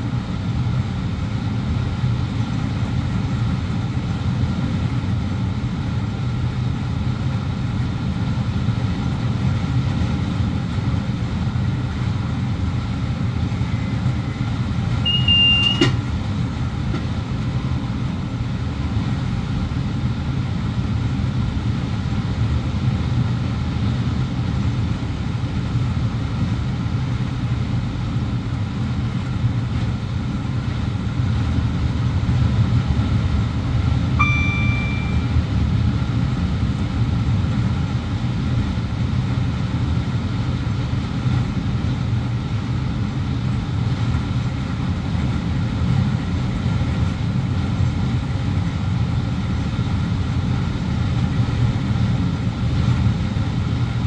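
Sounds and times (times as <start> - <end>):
train wheels rumbling on track: 8.9 - 19.8
short electronic beep: 15.0 - 16.0, 34.2 - 35.4.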